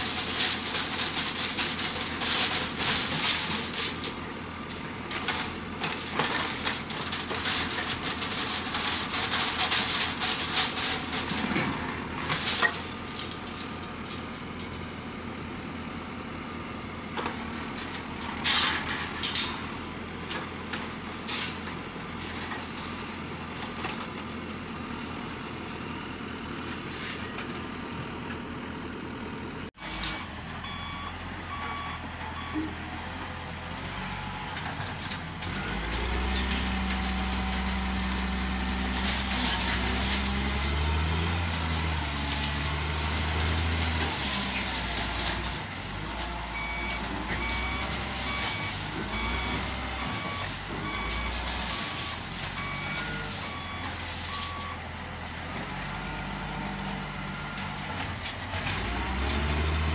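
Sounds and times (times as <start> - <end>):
diesel engine running: 0.0 - 59.9
loader engine revving: 0.0 - 59.9
reversing alarm beeps: 29.8 - 32.7, 46.5 - 54.8.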